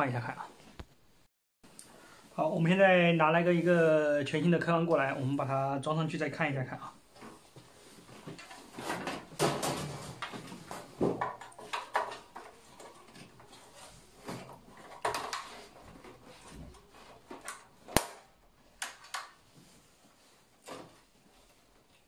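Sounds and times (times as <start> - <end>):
small clicks and knocks: 8.3 - 19.4.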